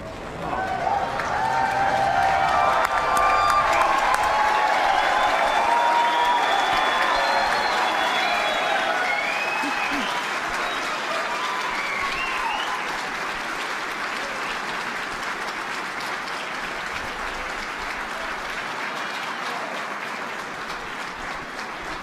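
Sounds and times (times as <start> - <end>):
crowd applauding: 0.0 - 22.0
shouts: 0.4 - 10.1.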